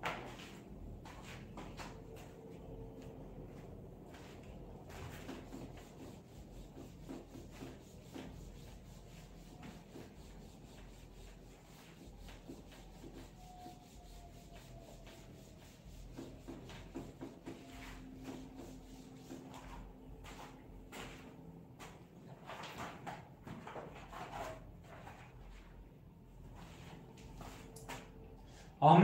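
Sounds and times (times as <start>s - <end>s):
eraser wiping whiteboard: 4.1s - 25.7s, 26.6s - 28.1s.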